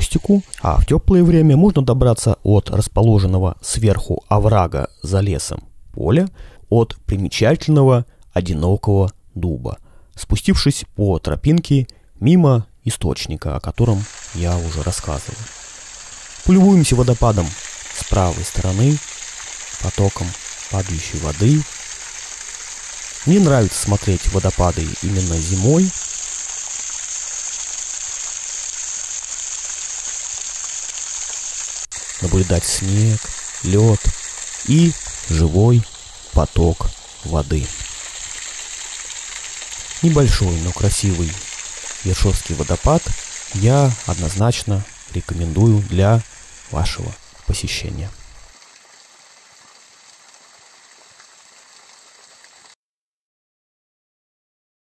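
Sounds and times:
waterfall splashing into pool: 13.8 - 52.8.

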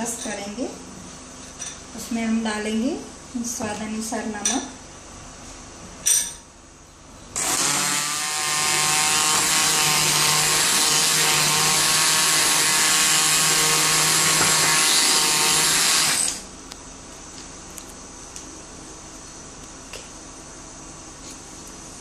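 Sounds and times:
electric hand blender running: 7.4 - 16.5.

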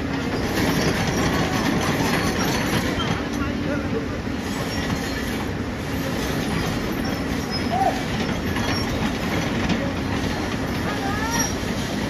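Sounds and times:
short squeal: 6.6 - 9.0.

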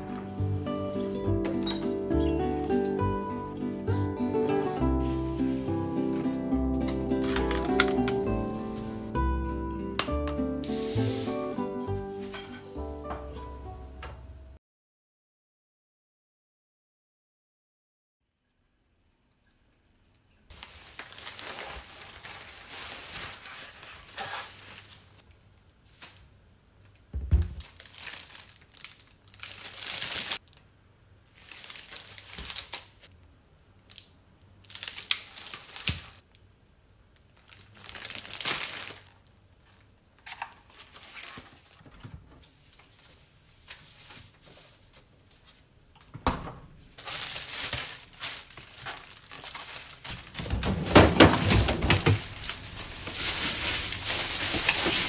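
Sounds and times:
plastic bags rustling: 0.0 - 9.1, 20.5 - 25.2, 27.4 - 30.6, 31.3 - 33.1, 34.6 - 36.2, 37.2 - 45.7, 46.8 - 55.0.

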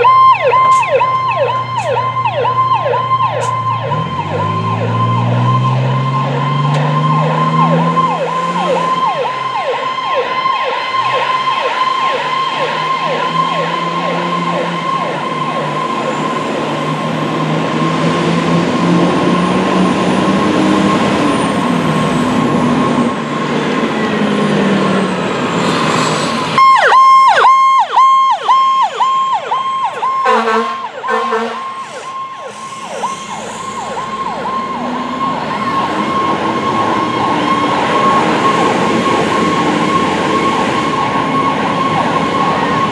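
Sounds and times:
electronic siren yelping: 0.0 - 17.5, 26.6 - 42.9
pulsed siren tone: 0.0 - 25.2, 26.5 - 42.9
diesel engine rumble: 0.0 - 42.9
short low horn blasts: 30.2 - 31.9.

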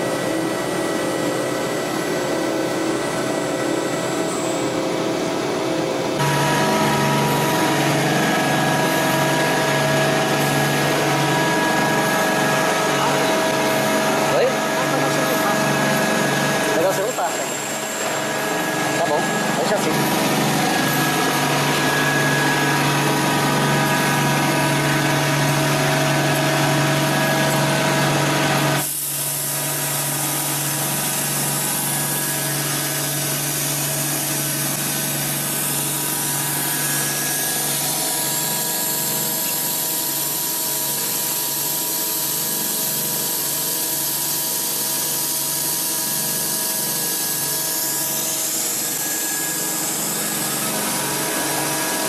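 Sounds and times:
machine hum with whining tones: 0.0 - 52.0
hiss: 28.8 - 31.7.

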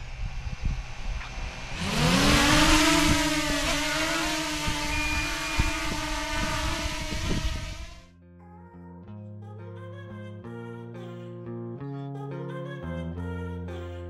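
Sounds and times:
drone propellers buzzing hum: 0.0 - 8.1.

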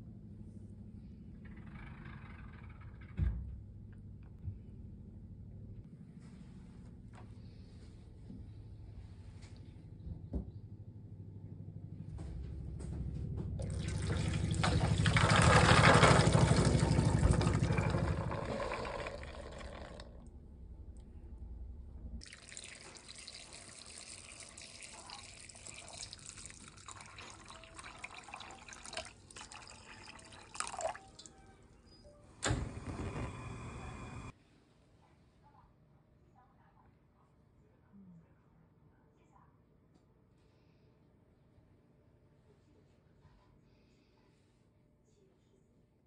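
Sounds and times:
water pouring into a pot: 13.6 - 20.2, 22.2 - 31.4.

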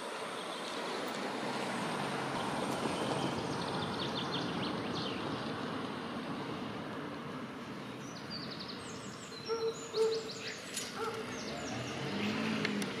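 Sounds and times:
starling clicks and chirps: 9.6 - 11.3.

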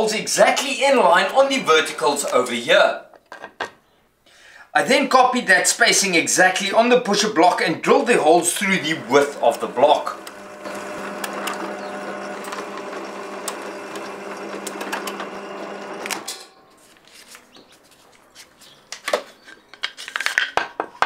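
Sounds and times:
drill press boring through wood: 8.2 - 16.5.

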